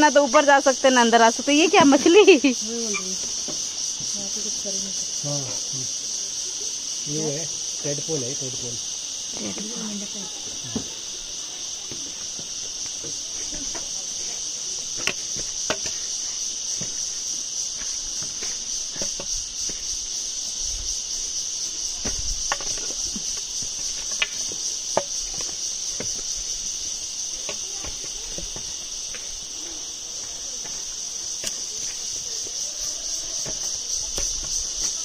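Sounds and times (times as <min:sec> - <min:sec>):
insects chorus: 0:00.0 - 0:35.0
footsteps on loose stones: 0:11.8 - 0:35.0.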